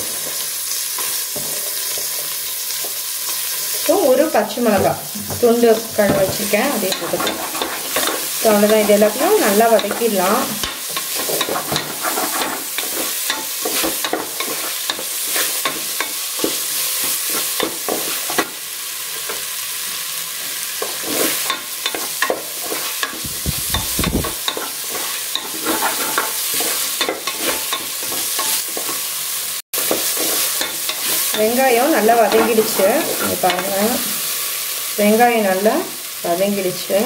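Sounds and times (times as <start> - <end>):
onions sizzling in oil: 0.0 - 37.0
wooden spatula scraping metal: 4.6 - 18.4, 20.8 - 29.0, 29.8 - 33.8.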